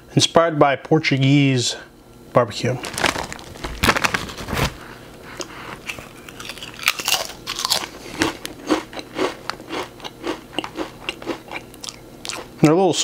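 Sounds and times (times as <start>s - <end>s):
foil bag crinkling: 2.6s - 5.0s
crunching chips while chewing: 2.7s - 12.6s.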